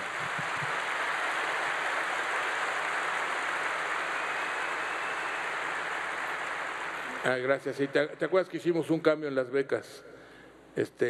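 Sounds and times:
large audience applauding: 0.0 - 7.7.

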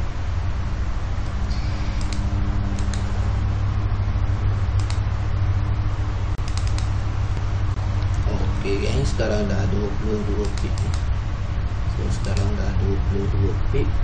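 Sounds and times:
low hum and hiss: 0.0 - 14.0
computer mouse clicks: 2.0 - 3.1, 4.8 - 5.0, 6.4 - 7.0, 10.4 - 11.1.

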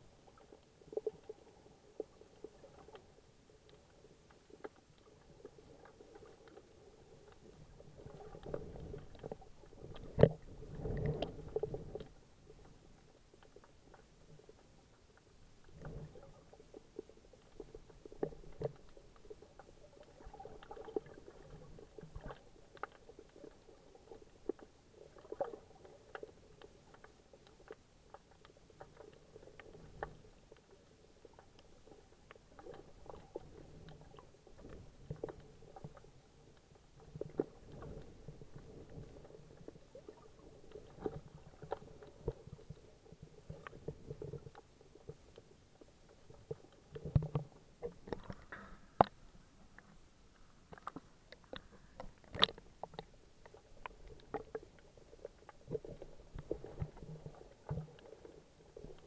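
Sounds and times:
underwater rumble of moving water: 0.0 - 59.0
sharp clicks and crackles: 50.7 - 59.0.

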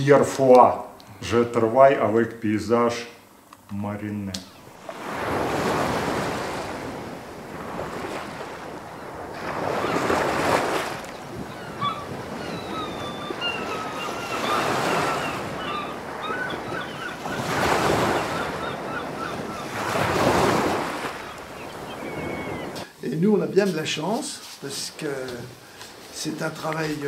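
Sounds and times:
waves breaking and washing back: 4.6 - 22.9
bird chirps: 11.2 - 19.8, 21.2 - 22.9.

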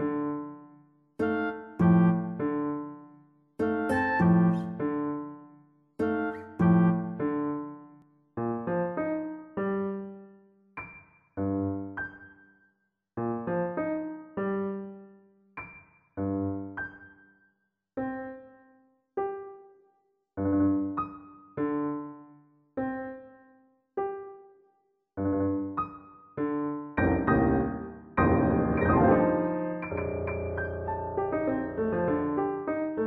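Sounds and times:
slow solo piano chords: 3.6 - 5.4, 6.0 - 7.8, 8.4 - 12.4, 20.4 - 22.2, 25.2 - 33.0.

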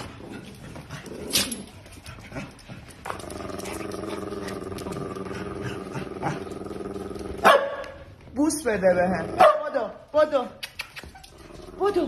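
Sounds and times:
dog growling: 0.0 - 7.5.

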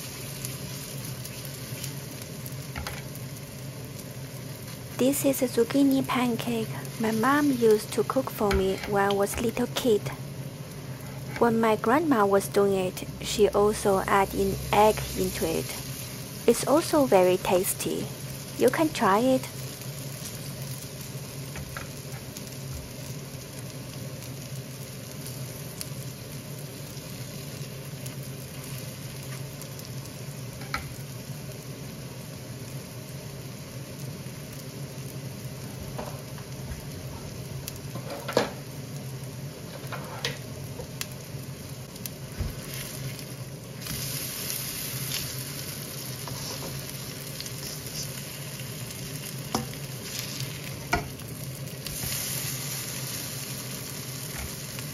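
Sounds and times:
low steady hum: 0.0 - 54.9
pancakes sizzling in oil: 0.0 - 54.9.

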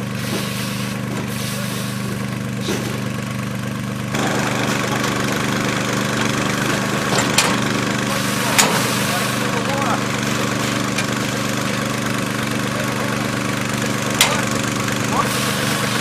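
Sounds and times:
small pump engine running: 0.0 - 16.0
spray hissing from nozzles: 0.2 - 2.8, 6.7 - 16.0.

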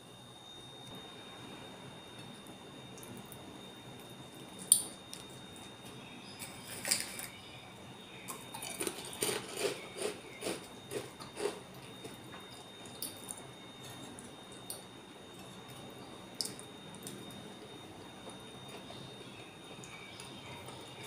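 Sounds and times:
faint high whine: 0.0 - 21.0
person chewing food: 8.3 - 14.8.

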